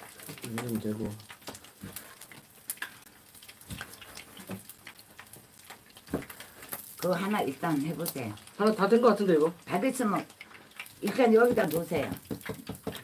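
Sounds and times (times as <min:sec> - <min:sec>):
blade knocking on board: 0:11.5 - 0:13.0.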